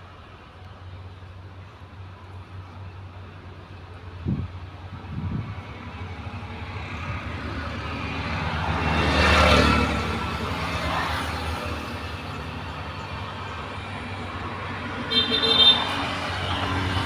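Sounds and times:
motor vehicle passing: 4.2 - 17.0.

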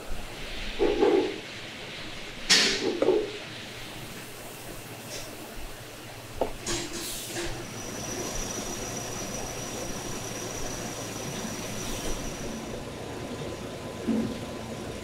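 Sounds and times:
high steady whine: 7.6 - 13.0
machine running: 7.6 - 13.0.

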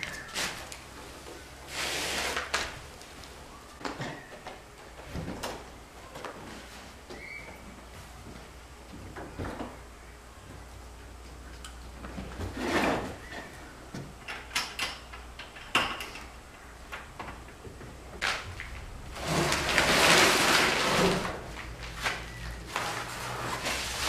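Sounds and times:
table scraping across wooden floor: 12.4 - 13.2, 19.1 - 21.5.

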